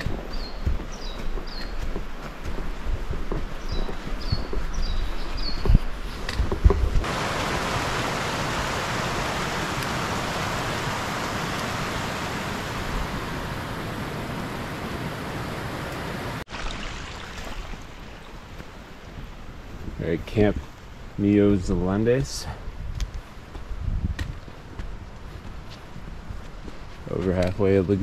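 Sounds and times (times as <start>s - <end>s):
footsteps on forest trail: 0.0s - 8.0s, 17.2s - 21.1s, 22.5s - 28.0s
stream running over rocks: 7.0s - 19.2s.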